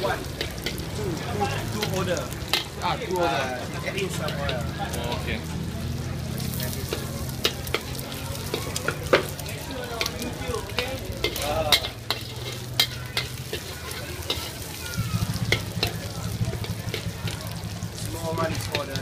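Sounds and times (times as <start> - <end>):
metal ladle scraping a wok: 0.0 - 0.9, 1.8 - 2.9, 10.0 - 17.8
egg sizzling in a wok: 0.0 - 19.0.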